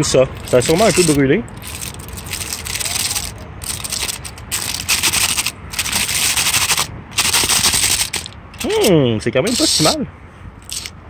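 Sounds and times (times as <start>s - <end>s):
aluminium foil crinkling: 0.4s - 8.9s.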